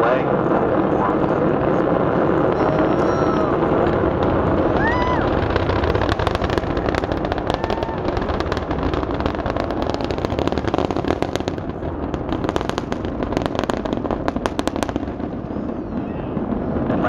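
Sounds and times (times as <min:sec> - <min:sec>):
distant rocket roar with crackling: 0:00.0 - 0:17.0.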